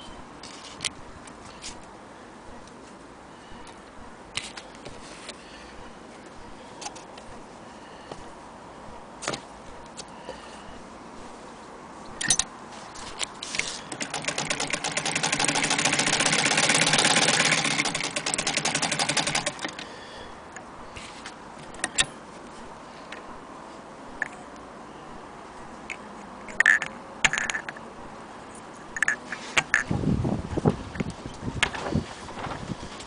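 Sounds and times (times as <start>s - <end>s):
sewing machine clattering: 13.9s - 19.8s.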